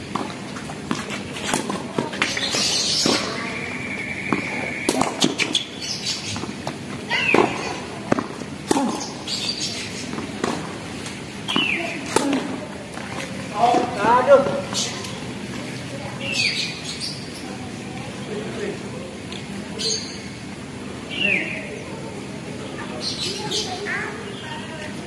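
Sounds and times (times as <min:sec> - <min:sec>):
tennis ball bouncing: 0:00.0 - 0:03.4, 0:04.3 - 0:14.6
racket hitting tennis ball: 0:00.1 - 0:03.3, 0:04.3 - 0:05.7, 0:06.3 - 0:09.2, 0:10.1 - 0:13.8.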